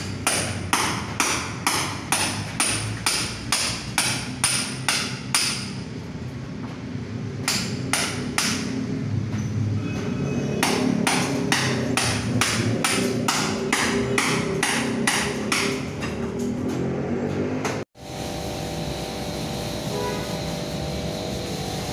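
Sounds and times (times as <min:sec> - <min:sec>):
hand hammer striking: 0:00.0 - 0:05.8, 0:07.4 - 0:08.7, 0:10.6 - 0:16.2.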